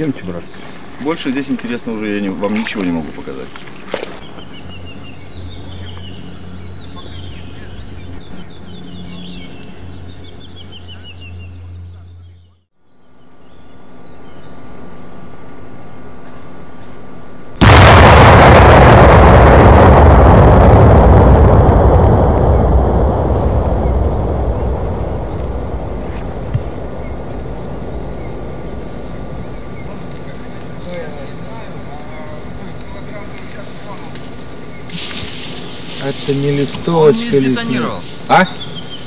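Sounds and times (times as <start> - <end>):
birds chirping: 3.6 - 15.1, 23.1 - 39.0
steady low hum: 17.4 - 39.0
loud explosion blast: 17.6 - 31.8
long rumble: 17.6 - 32.8.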